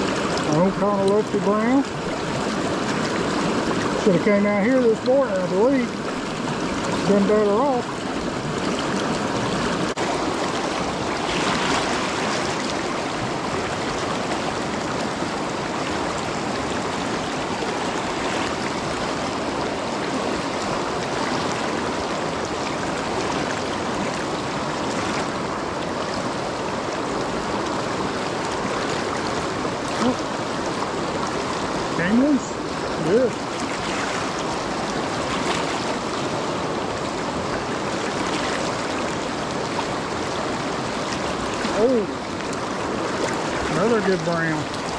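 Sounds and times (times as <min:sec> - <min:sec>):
river rushing over rocks: 0:00.0 - 0:44.9.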